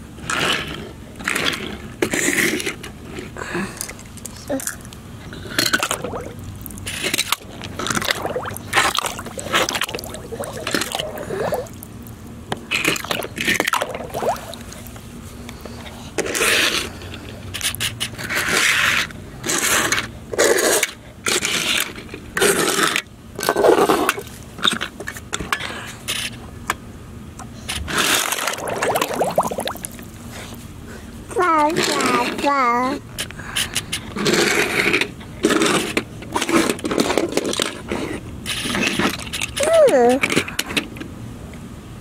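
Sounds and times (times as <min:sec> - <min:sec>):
toy cars scraping across board: 0:16.2 - 0:17.0, 0:17.6 - 0:23.0, 0:33.7 - 0:39.6.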